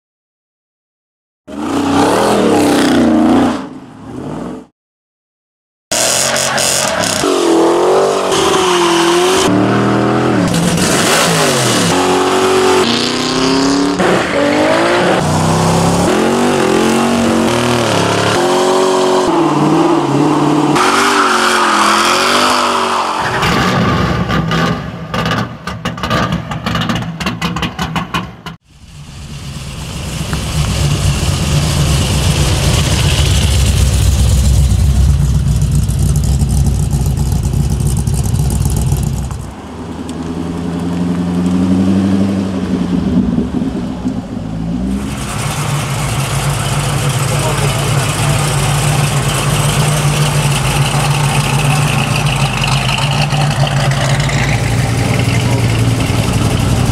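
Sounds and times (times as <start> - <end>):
car engines revving and accelerating: 1.5 - 4.7, 5.9 - 26.9, 29.2 - 56.9
deep low rumble: 28.7 - 39.5
rapid engine popping: 29.2 - 39.5, 45.1 - 56.9.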